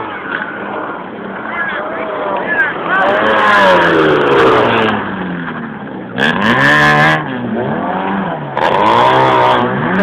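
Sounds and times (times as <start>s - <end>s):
rally car engine revving: 2.8s - 10.0s.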